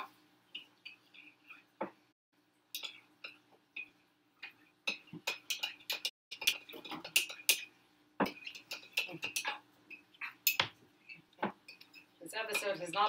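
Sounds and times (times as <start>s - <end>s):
cookware clicking and clattering: 2.8s - 13.0s.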